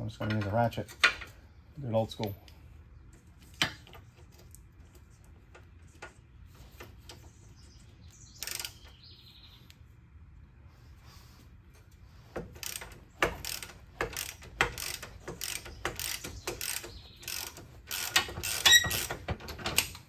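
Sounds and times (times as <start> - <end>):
hand ratchet clicking: 8.4 - 8.8, 12.4 - 20.0.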